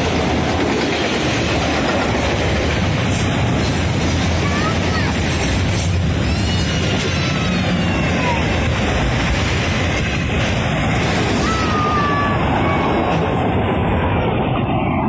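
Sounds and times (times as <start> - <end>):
train wheels rumbling on rails: 0.0 - 15.0
wheels squealing against rail: 4.5 - 8.6.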